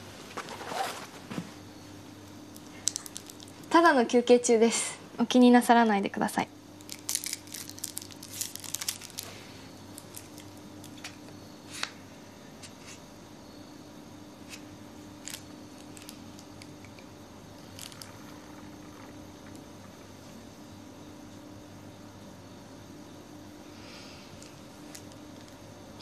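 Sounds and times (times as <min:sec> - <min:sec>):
wrapper crinkling: 0:02.6 - 0:03.7, 0:06.8 - 0:11.2, 0:15.2 - 0:17.0, 0:17.6 - 0:18.6.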